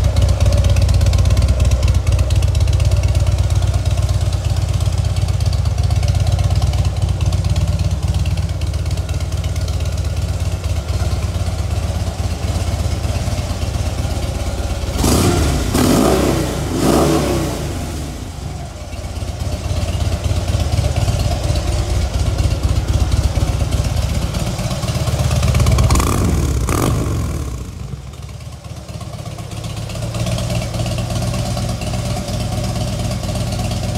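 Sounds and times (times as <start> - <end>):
motorcycle engine idling: 0.0 - 33.9
engine revving: 14.9 - 18.6, 25.6 - 28.0.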